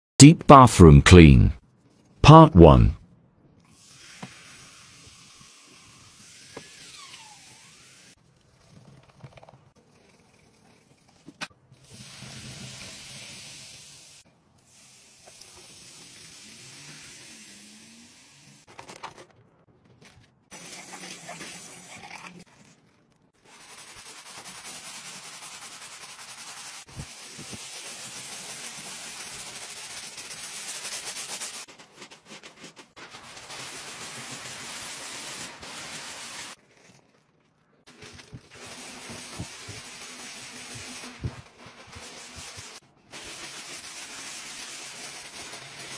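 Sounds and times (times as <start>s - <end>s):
sponge scrubbing tiles: 23.4s - 37.0s, 37.9s - 45.9s.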